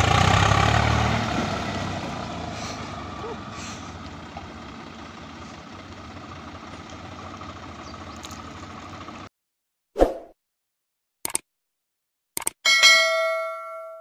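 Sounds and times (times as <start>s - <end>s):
tractor diesel engines running: 0.0s - 9.3s.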